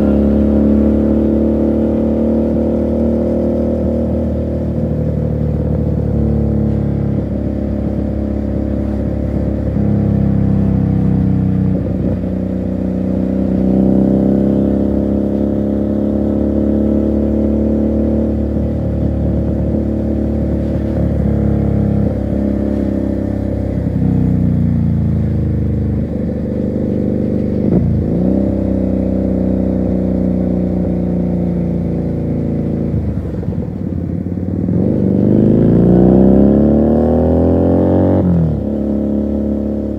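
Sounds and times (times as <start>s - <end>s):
motorcycle engine and exhaust: 0.0s - 39.9s.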